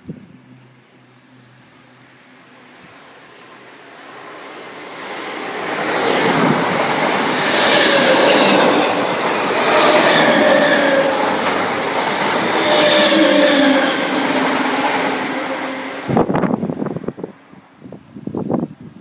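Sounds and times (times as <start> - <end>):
steady high tones: 4.5 - 17.1
train wheels clattering on rails: 5.3 - 16.3.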